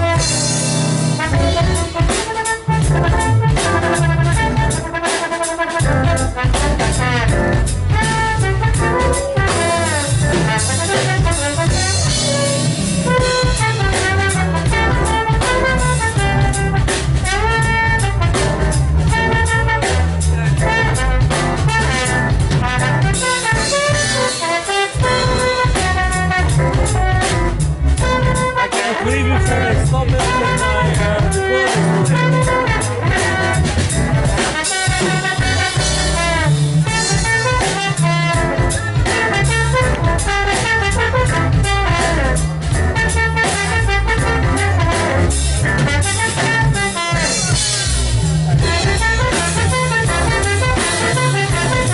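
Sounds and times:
drum kit: 0.0 - 51.9
keyboard: 0.0 - 51.9
trombone lead line: 0.0 - 51.9.

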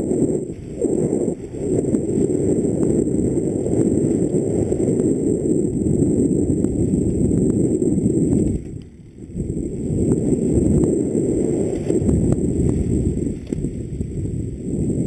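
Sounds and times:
tyres on a dirt trail: 0.0 - 15.0
wind buffeting a microphone: 0.0 - 15.0
bike clicks and rattles: 8.2 - 9.4, 11.6 - 14.0.

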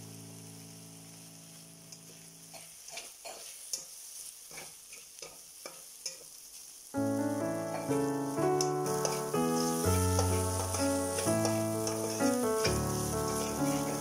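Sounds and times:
faint sizzle: 0.0 - 14.0
spatula scraping a pan: 2.6 - 6.3, 8.9 - 14.0.

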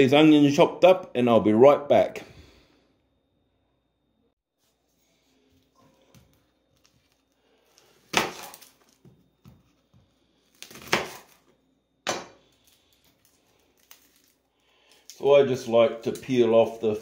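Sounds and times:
handling and rustling: 12.4 - 17.0.

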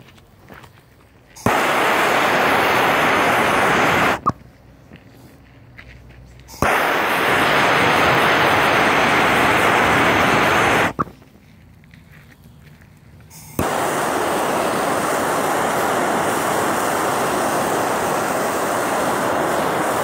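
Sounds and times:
battery crackling as it burns: 1.4 - 4.4, 6.5 - 11.1, 13.3 - 20.0
blowtorch click: 1.4 - 4.4, 6.5 - 11.1, 13.4 - 20.0
blowtorch flame hissing: 1.4 - 4.4, 6.5 - 11.0, 13.3 - 20.0.

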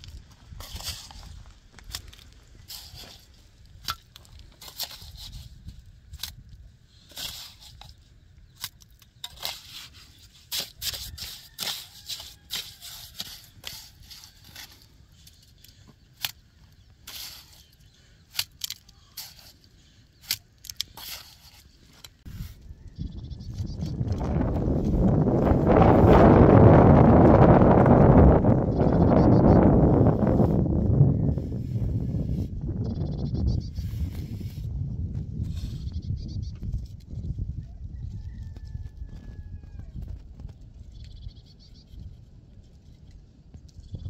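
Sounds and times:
trowel scraping mortar in metal pan: 4.6 - 6.4, 7.0 - 8.0, 8.6 - 16.4, 17.0 - 22.6.

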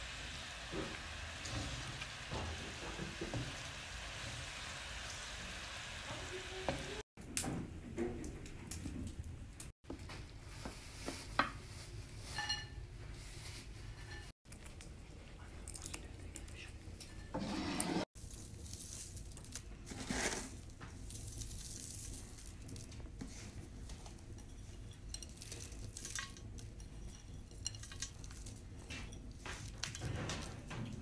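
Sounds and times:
clinks of dishes and utensils: 12.2 - 12.9.

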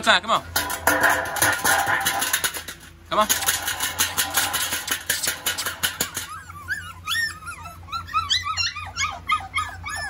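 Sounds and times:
wire pen panels rattling: 0.6 - 6.3
puppies whining and yipping: 5.0 - 10.0.

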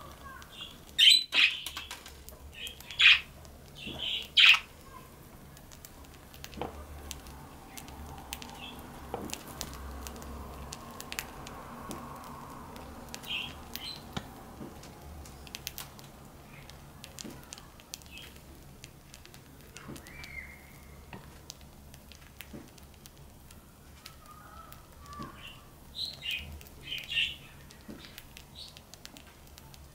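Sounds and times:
wings fluttering: 0.0 - 4.7
birds cracking seed: 0.0 - 29.9
budgerigars chirping: 0.6 - 1.8, 2.6 - 4.7, 13.2 - 14.0.

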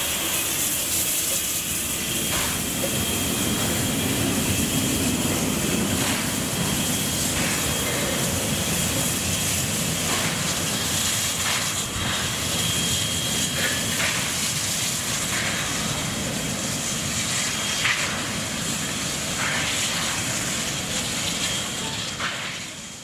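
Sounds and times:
steam locomotive chuffs: 0.0 - 23.0
steam locomotive hiss and rumble: 0.0 - 23.0.

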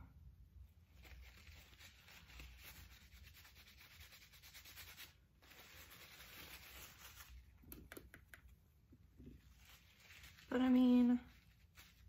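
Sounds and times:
brush scrubbing in damp napkin: 0.9 - 7.4.

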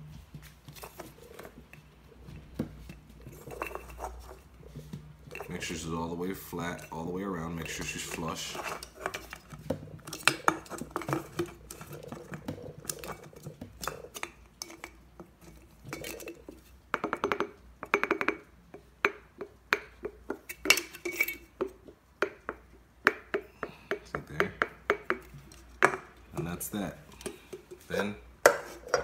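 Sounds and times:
aluminium cans clicking and crinkling: 5.3 - 18.5.

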